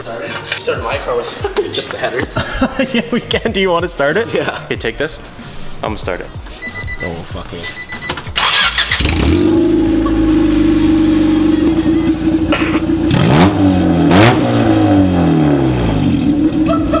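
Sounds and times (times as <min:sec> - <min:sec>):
car engine starting and idling: 0:08.1 - 0:17.0
car engine revving: 0:08.4 - 0:17.0.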